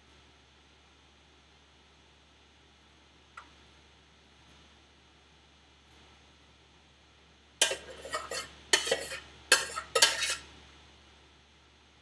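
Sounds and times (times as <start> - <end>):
utensil scraping a metal saucepan: 7.6 - 10.5.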